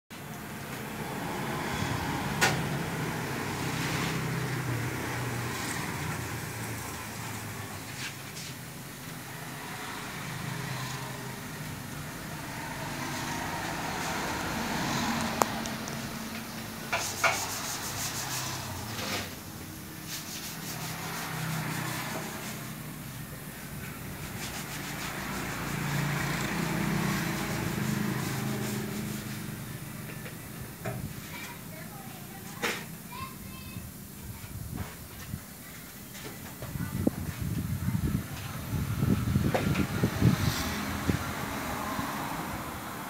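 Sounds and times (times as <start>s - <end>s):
outdoor background noise: 0.1s - 43.0s
rubbing and scraping: 16.8s - 19.4s, 20.0s - 22.8s, 23.8s - 29.5s.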